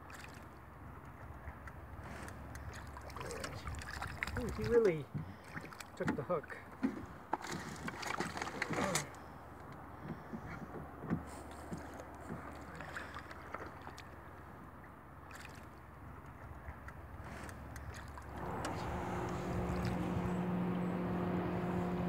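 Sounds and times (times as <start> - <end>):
light water sounds: 0.0 - 22.0
small knocks around boat: 1.0 - 15.6
steady engine drone: 8.7 - 22.0.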